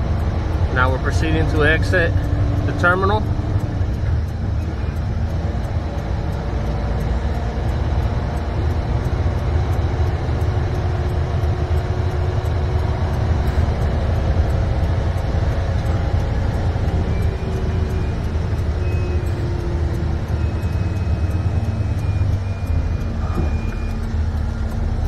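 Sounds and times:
diesel truck engine running: 0:00.0 - 0:25.0
road noise: 0:00.0 - 0:25.0.

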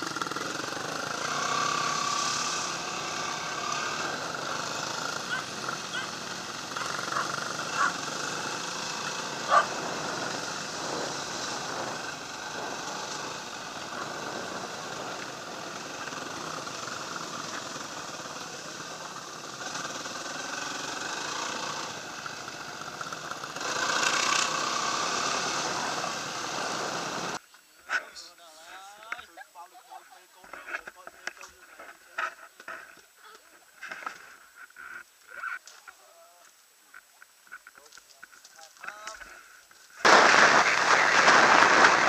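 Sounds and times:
dirt bike engine running: 0:00.0 - 0:27.4, 0:40.0 - 0:42.0.

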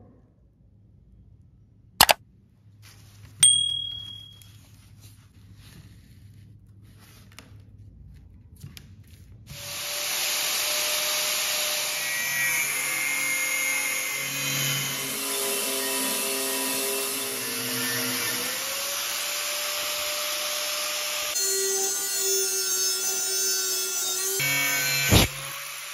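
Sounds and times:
sharp click: 0:02.0 - 0:02.2
bell-like ding: 0:03.4 - 0:04.5
angle grinder cutting steel: 0:09.6 - 0:25.9.

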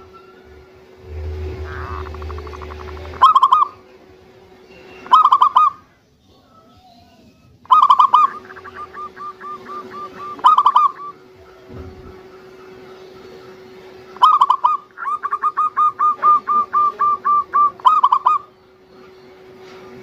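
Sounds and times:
dove cooing: 0:01.0 - 0:03.8, 0:05.1 - 0:05.8, 0:07.7 - 0:11.2, 0:14.2 - 0:18.5.

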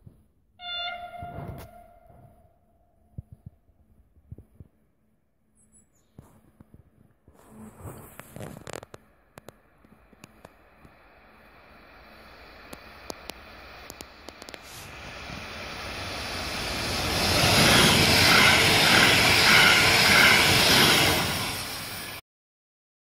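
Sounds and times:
train passing at speed: 0:09.1 - 0:22.2.

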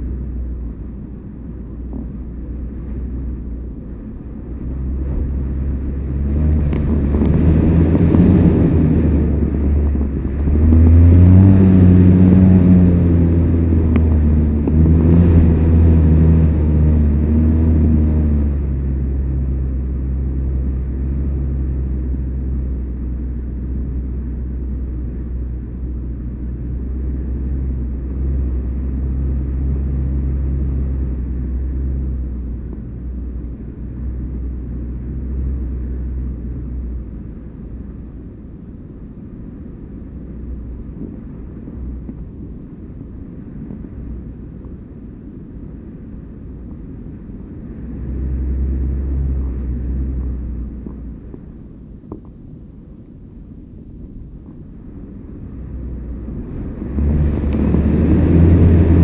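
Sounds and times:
wind buffeting camera: 0:04.3 - 0:16.9.

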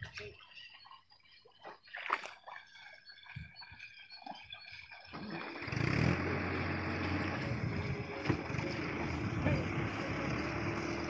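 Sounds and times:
motor engine rumble: 0:05.1 - 0:11.0.

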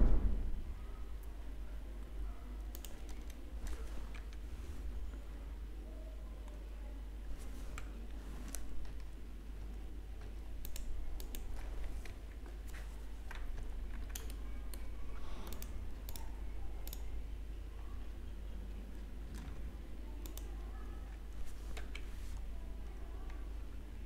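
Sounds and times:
computer mouse clicks: 0:02.7 - 0:03.4, 0:07.7 - 0:09.1, 0:10.2 - 0:17.1, 0:20.2 - 0:20.7, 0:21.6 - 0:22.1
keyboard key presses: 0:10.2 - 0:17.1.

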